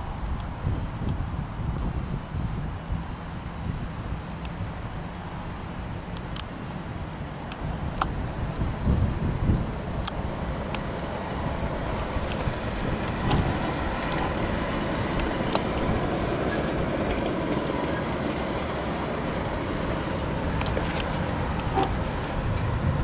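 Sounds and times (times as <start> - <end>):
van engine and tyre rumble: 0.0 - 23.0.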